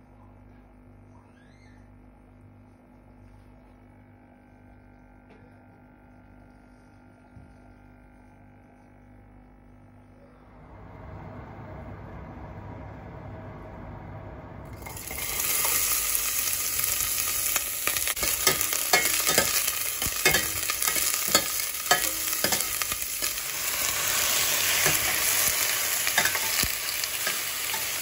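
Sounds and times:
onions sizzling in hot oil: 0:14.7 - 0:28.0
metal ladle scraping a pot: 0:24.8 - 0:28.0.

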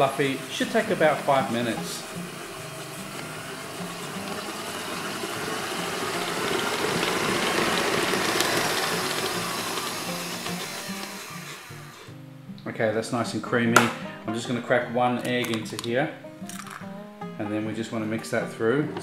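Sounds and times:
stand mixer running: 0:00.0 - 0:12.1.

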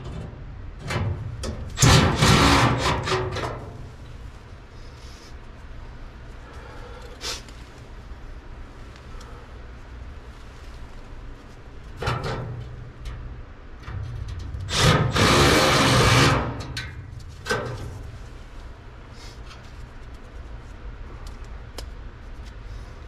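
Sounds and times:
steady low hum: 0:00.0 - 0:23.0
cordless impact driver running: 0:14.7 - 0:16.6
rubbing and handling noises: 0:17.1 - 0:21.6.

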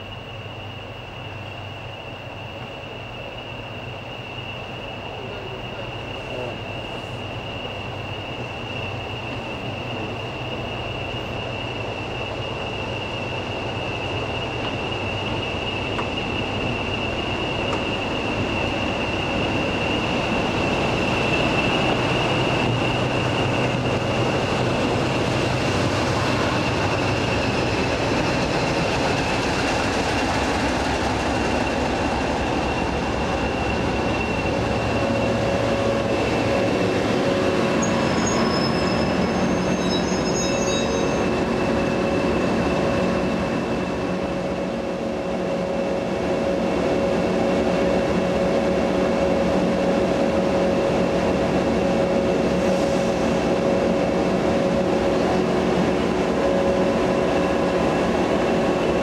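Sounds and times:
diesel locomotive engines droning: 0:00.0 - 0:59.0
high turbocharger whistle: 0:33.6 - 0:41.6.

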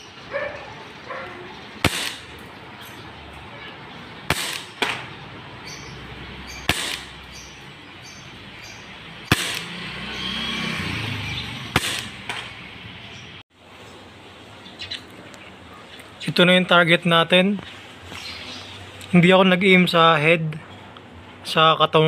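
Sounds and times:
airsoft pistol shots: 0:01.8 - 0:02.3, 0:04.3 - 0:05.1, 0:06.6 - 0:07.2, 0:09.2 - 0:09.8, 0:11.7 - 0:12.5.

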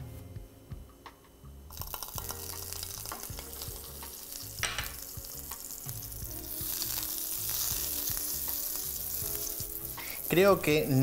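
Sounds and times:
butter sizzling in frying pan: 0:01.7 - 0:11.0.

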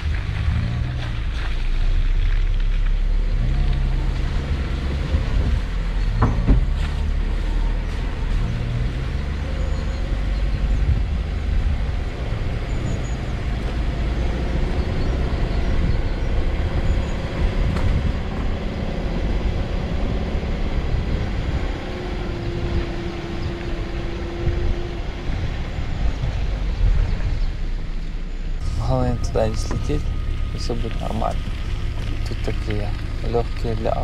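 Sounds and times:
car engine rumbling: 0:00.0 - 0:34.0
car jolting over ruts: 0:28.3 - 0:34.0.

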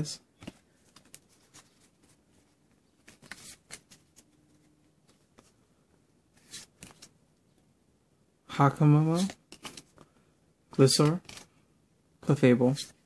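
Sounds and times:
trading cards rustling and flicking: 0:00.4 - 0:05.6, 0:06.4 - 0:07.2, 0:09.0 - 0:10.2, 0:10.8 - 0:11.6.

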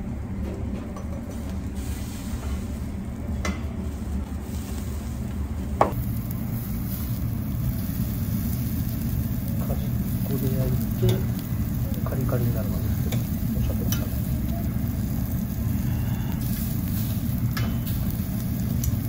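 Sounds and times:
low steady hum: 0:00.0 - 0:19.0
meat sizzling on a grill: 0:04.3 - 0:19.0.

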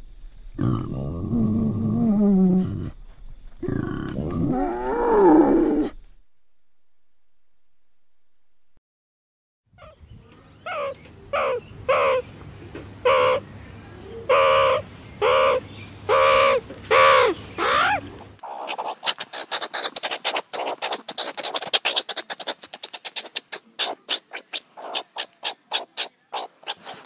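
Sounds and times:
meerkat harsh calls: 0:10.6 - 0:12.3, 0:13.0 - 0:13.4, 0:14.3 - 0:27.0
meerkat clicking chatter: 0:14.3 - 0:27.0.

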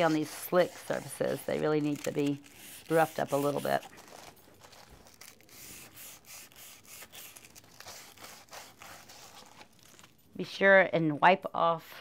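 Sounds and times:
sandpaper rubbing on wood: 0:00.0 - 0:03.9, 0:05.5 - 0:09.6.

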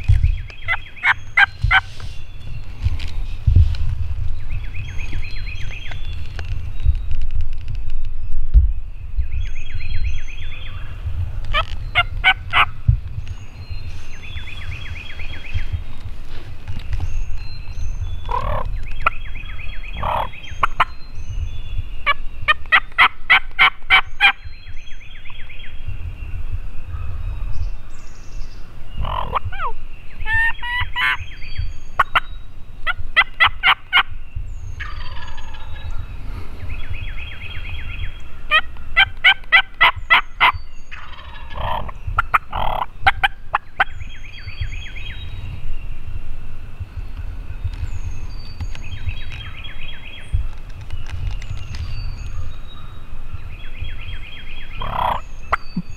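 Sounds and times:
songbirds chirping: 0:00.0 - 0:55.9
turkey gobbling: 0:00.7 - 0:01.9, 0:11.5 - 0:12.7, 0:20.0 - 0:20.9, 0:22.5 - 0:24.3, 0:30.3 - 0:31.2, 0:32.9 - 0:34.1, 0:38.5 - 0:43.9, 0:54.8 - 0:55.2.

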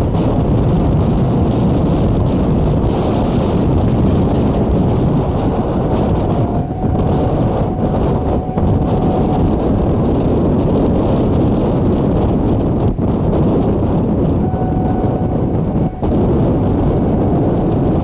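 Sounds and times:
train wheels rumbling on rail: 0:00.0 - 0:18.0
wind buffeting microphone: 0:00.0 - 0:18.0
faint high tone: 0:05.7 - 0:10.4, 0:14.4 - 0:16.5.

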